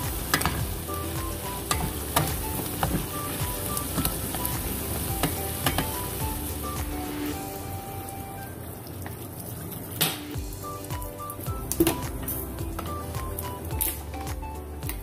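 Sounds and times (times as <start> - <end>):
food sizzling in a pot: 0.0 - 8.7, 10.0 - 15.0
background music: 0.0 - 8.8, 10.0 - 15.0.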